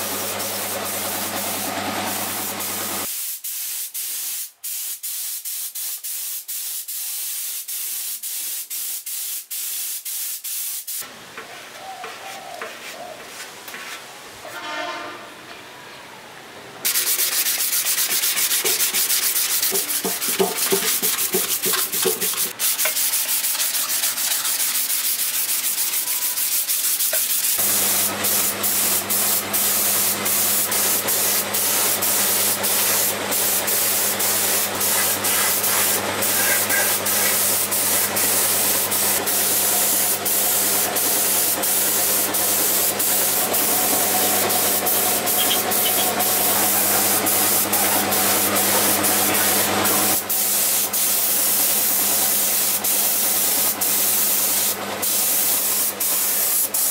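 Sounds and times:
air spray gun hissing: 0:00.0 - 0:11.0, 0:16.9 - 0:56.9
sanding block rubbing: 0:16.9 - 0:27.6, 0:34.9 - 0:37.5.

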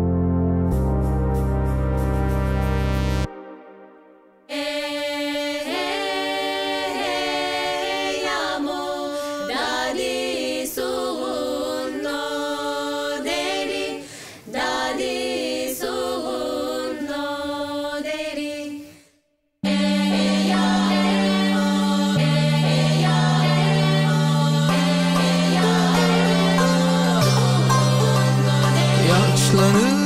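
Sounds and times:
women singing a capella: 0:04.5 - 0:30.0.

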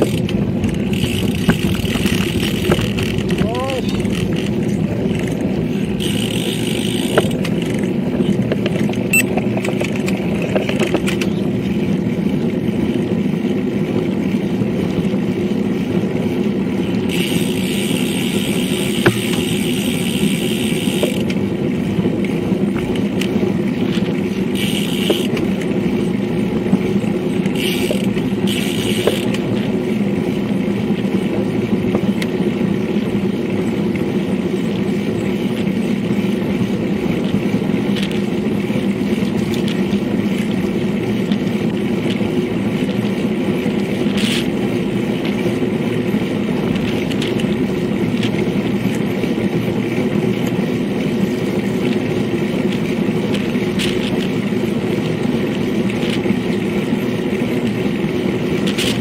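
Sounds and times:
wind over microphone: 0:00.0 - 0:24.6
tyres rumbling on asphalt: 0:00.0 - 0:59.0.

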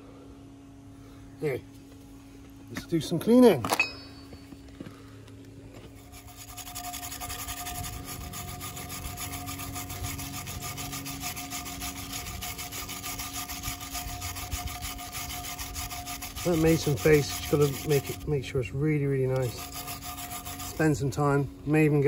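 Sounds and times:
wire brush scrubbing metal: 0:05.9 - 0:22.0.

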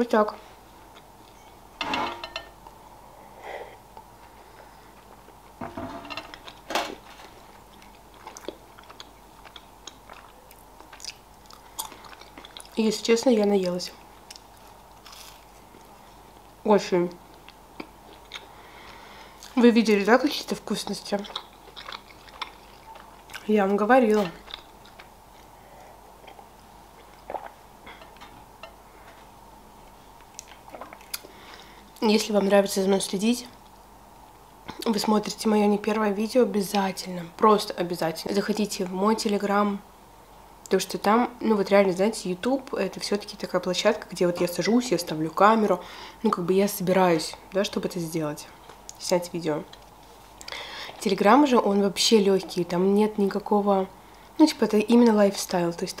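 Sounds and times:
crockery clinking: 0:01.8 - 0:02.6
chewing soft sweets: 0:07.2 - 0:16.6, 0:17.3 - 0:19.6, 0:20.4 - 0:28.4, 0:29.0 - 0:32.0.

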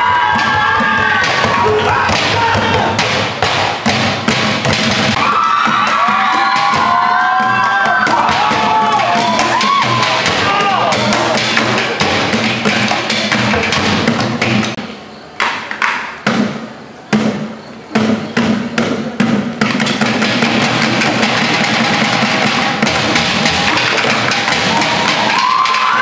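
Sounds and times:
people shouting: 0:00.0 - 0:03.2, 0:05.1 - 0:12.0, 0:21.2 - 0:26.0
drumming on plastic barrels: 0:00.0 - 0:26.0.

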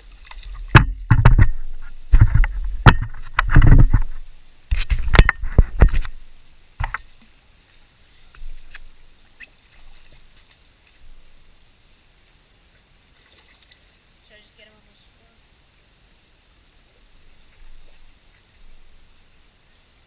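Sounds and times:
water splashing: 0:00.0 - 0:11.6, 0:12.3 - 0:14.7, 0:17.0 - 0:19.4
steady hiss: 0:04.0 - 0:20.0.

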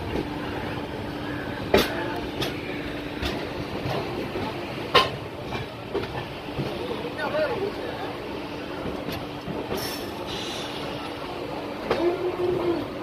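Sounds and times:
train coaches rumbling: 0:00.0 - 0:13.0
wheels clacking over rail joints: 0:01.6 - 0:07.8.

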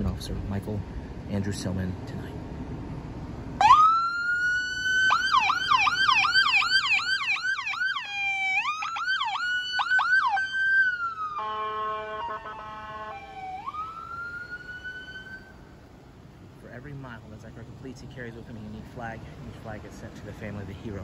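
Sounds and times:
siren wailing and yelping: 0:03.6 - 0:15.6
buzzing horn tone: 0:11.3 - 0:13.3.

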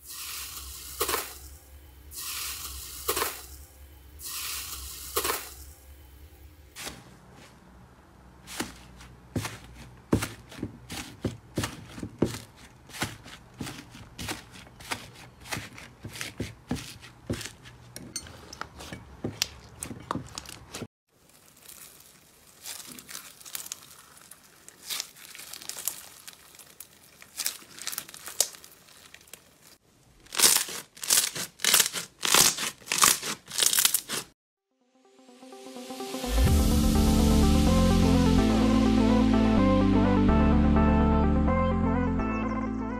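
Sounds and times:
crunchy slime crackling: 0:08.4 - 0:17.9, 0:19.4 - 0:34.3.

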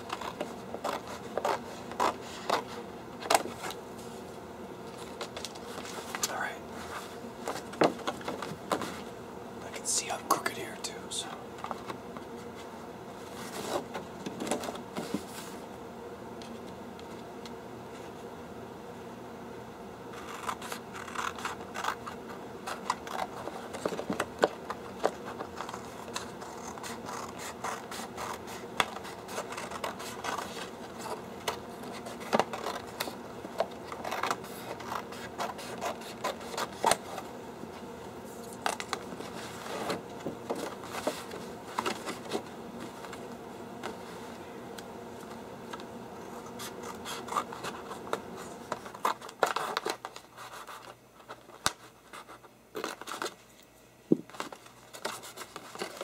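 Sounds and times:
scissors cutting posterboard: 0:00.0 - 0:03.8, 0:20.1 - 0:37.2, 0:46.4 - 0:53.3
paper rustling: 0:00.0 - 0:09.1, 0:20.1 - 0:44.4, 0:45.2 - 0:56.0.

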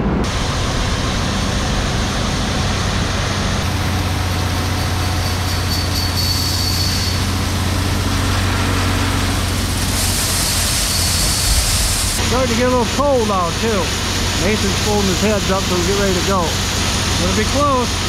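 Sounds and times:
tractor engine running: 0:00.0 - 0:18.0
grain pouring from auger spout: 0:03.6 - 0:18.0.

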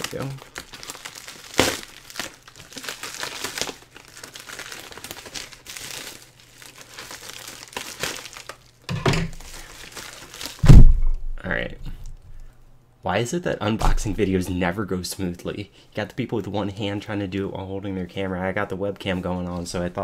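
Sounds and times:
plastic bag crinkling: 0:00.0 - 0:10.7
dull thump: 0:10.6 - 0:11.4.

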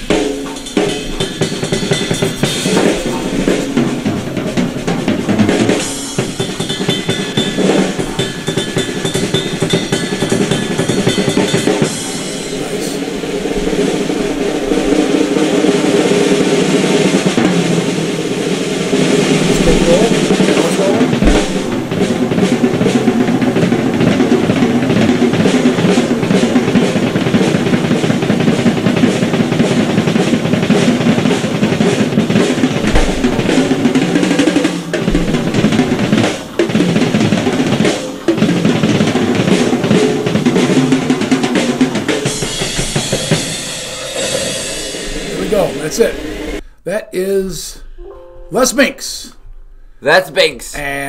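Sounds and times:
fast rock drum solo: 0:00.0 - 0:46.6
cymbals: 0:00.0 - 0:46.7.

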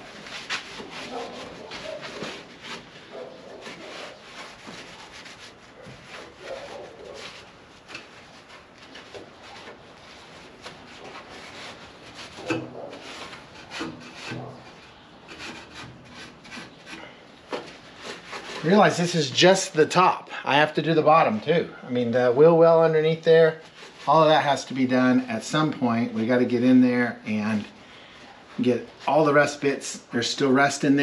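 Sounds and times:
towel scrubbing metal panel: 0:00.0 - 0:19.2.

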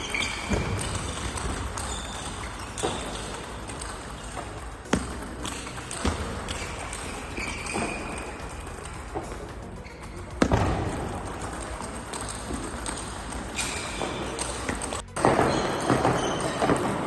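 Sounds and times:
high squeak: 0:00.0 - 0:03.6, 0:06.5 - 0:08.4, 0:15.4 - 0:16.8
table tennis ball hits: 0:00.0 - 0:17.0.

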